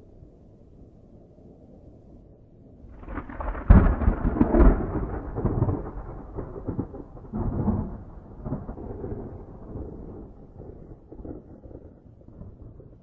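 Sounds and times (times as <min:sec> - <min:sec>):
thunder crack and rumble: 0:02.9 - 0:13.0.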